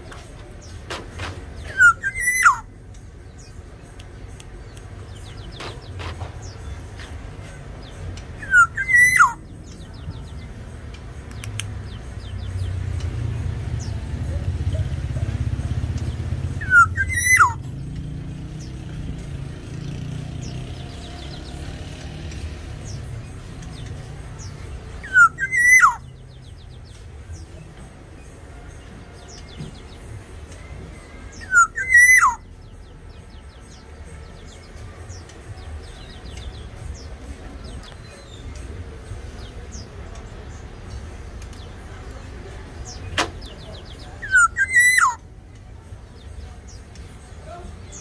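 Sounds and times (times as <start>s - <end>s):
bird slurred whistles: 1.7s - 2.6s, 8.4s - 9.4s, 16.6s - 17.6s, 25.0s - 26.0s, 31.4s - 32.4s, 44.2s - 45.2s.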